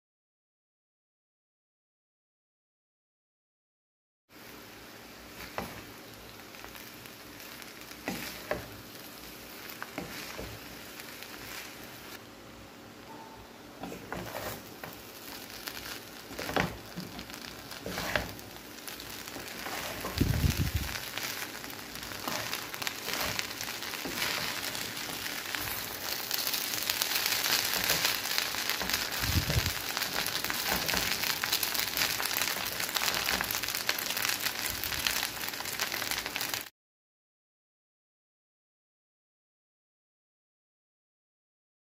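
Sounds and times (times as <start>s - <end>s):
rice sizzling in a frying pan: 4.3s - 13.0s, 13.7s - 36.7s.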